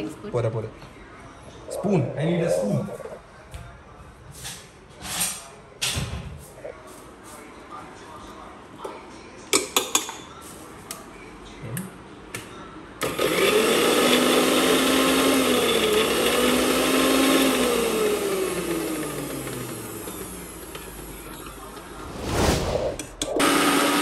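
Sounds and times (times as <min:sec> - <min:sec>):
electric mixer grinder running: 0:13.0 - 0:21.1, 0:23.4 - 0:24.0.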